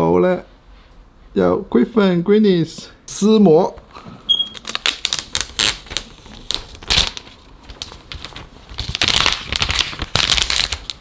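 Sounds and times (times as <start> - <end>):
plastic film crinkling: 4.5 - 11.0.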